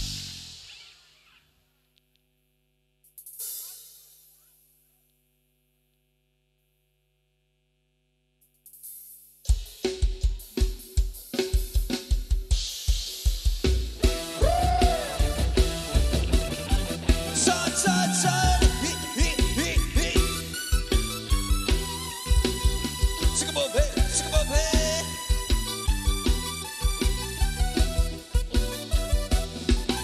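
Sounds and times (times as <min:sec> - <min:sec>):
band playing with drum kit: 0:09.5 - 0:30.0.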